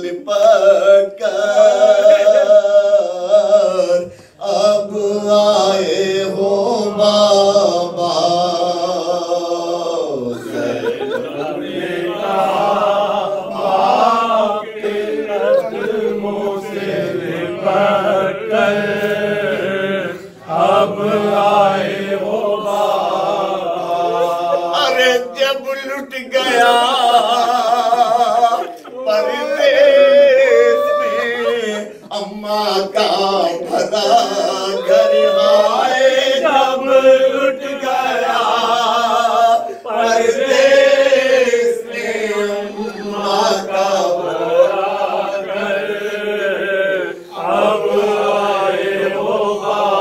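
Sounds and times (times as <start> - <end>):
man chanting: 0.0 - 11.2, 22.0 - 46.8
men's voices chanting: 0.0 - 50.0.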